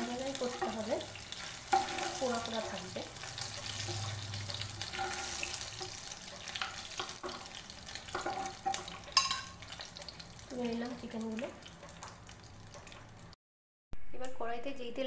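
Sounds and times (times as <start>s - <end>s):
hot oil sizzling: 0.0s - 13.4s
metal utensil clinking: 3.5s - 9.7s.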